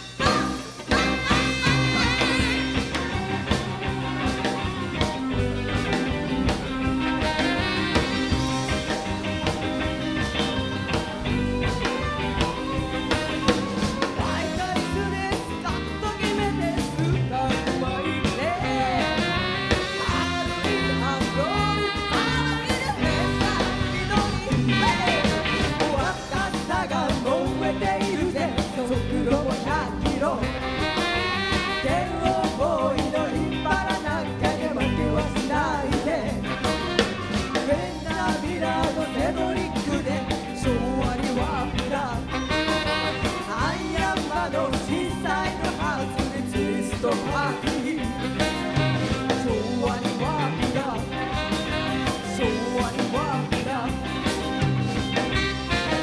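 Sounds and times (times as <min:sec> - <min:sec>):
rock and roll band playing: 0:00.0 - 0:56.0
women singing: 0:00.1 - 0:02.7, 0:20.1 - 0:30.4, 0:37.6 - 0:42.0, 0:43.6 - 0:48.3.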